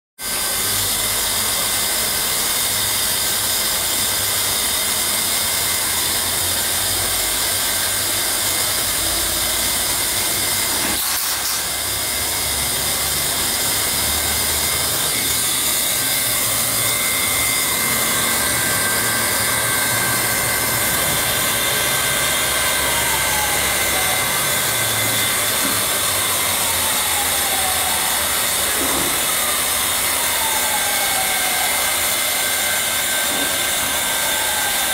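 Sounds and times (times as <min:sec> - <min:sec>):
hot-air welding gun blower hissing: 0:00.3 - 0:34.9.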